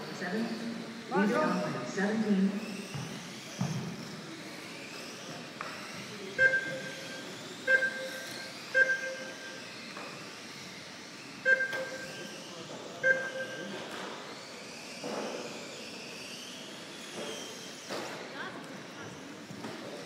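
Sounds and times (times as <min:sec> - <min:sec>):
hall background noise: 0:00.0 - 0:14.8
two-pitched timing beeps: 0:06.4 - 0:09.6, 0:11.4 - 0:12.3, 0:13.0 - 0:13.8.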